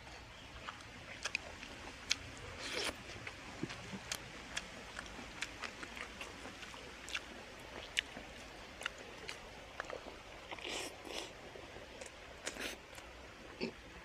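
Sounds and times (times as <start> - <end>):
wet mouth clicks chewing: 0.6 - 11.3.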